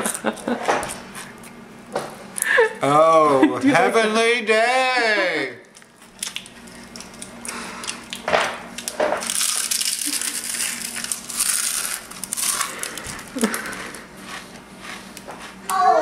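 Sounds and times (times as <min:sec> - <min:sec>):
potato chip crunching: 0:05.7 - 0:15.8.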